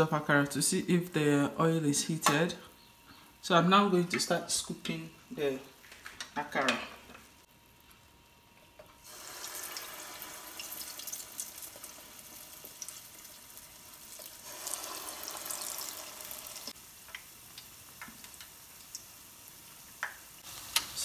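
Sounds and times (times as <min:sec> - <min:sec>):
batter sizzling in hot oil: 0:07.2 - 0:21.0
oil popping and crackling: 0:07.7 - 0:21.0.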